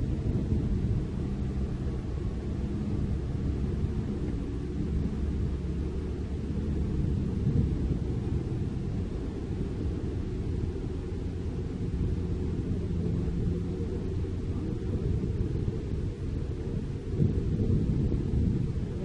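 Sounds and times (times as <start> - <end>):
diesel truck engine rumbling: 0.0 - 19.0.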